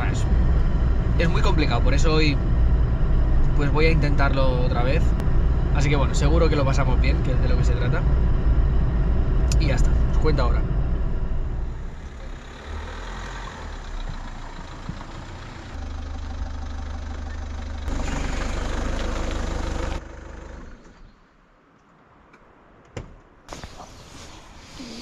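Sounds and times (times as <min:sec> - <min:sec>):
car engine running: 0:00.0 - 0:21.2
car driving past: 0:10.7 - 0:16.4, 0:17.0 - 0:21.2.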